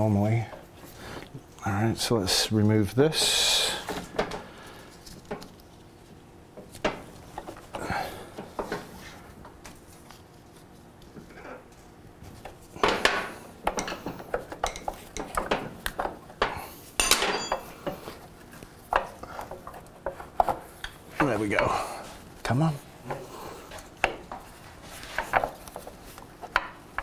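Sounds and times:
short metallic ring: 0:17.0 - 0:17.6
metal parts clinking and clattering: 0:17.0 - 0:17.7.

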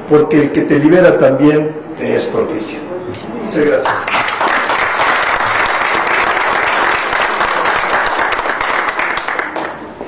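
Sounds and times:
audience applauding: 0:03.8 - 0:10.0.

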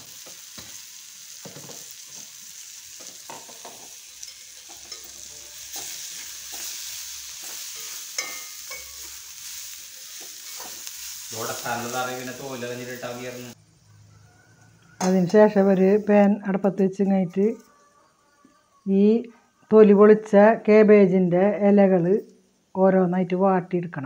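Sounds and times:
onions sizzling in a pan: 0:00.0 - 0:13.6
metal spoon clinking on pan: 0:03.0 - 0:09.2.

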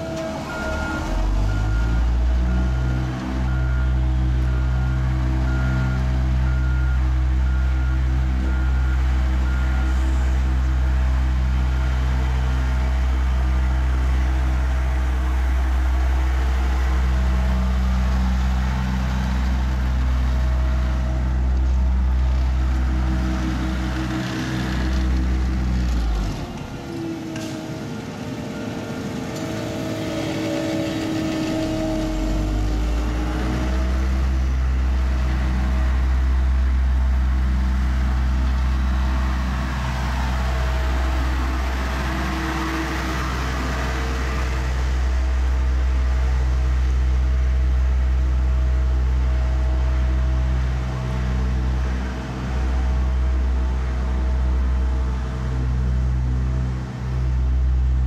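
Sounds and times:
diesel roller engine running: 0:00.0 - 0:58.0
deep low rumble: 0:31.6 - 0:58.0.

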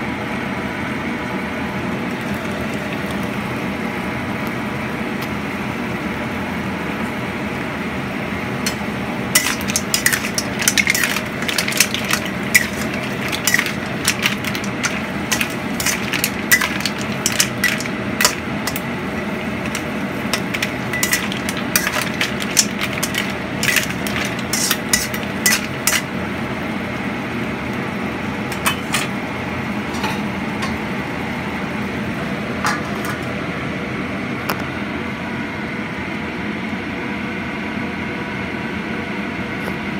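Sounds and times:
steady rushing hum: 0:08.6 - 0:26.3
metal spatula scraping a wok: 0:09.4 - 0:18.8, 0:19.4 - 0:26.1.

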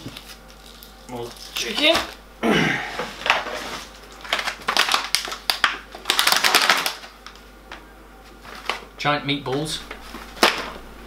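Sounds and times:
plastic packaging crinkling: 0:00.0 - 0:02.2, 0:03.2 - 0:07.6.

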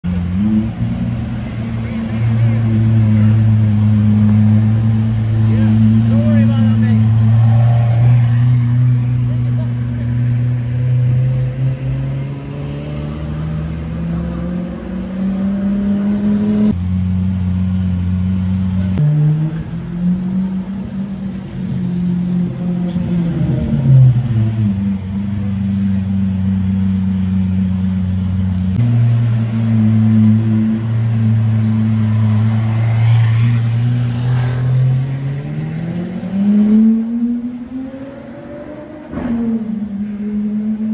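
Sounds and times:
sports car engine revving: 0:00.1 - 0:40.9.

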